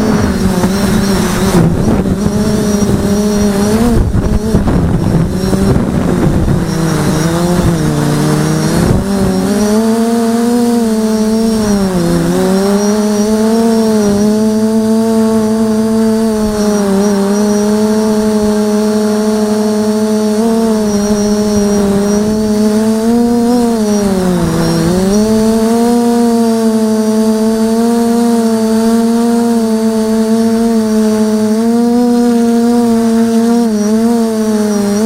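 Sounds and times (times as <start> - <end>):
drone propellers humming: 0.0 - 35.0
faint high whine: 0.0 - 35.0.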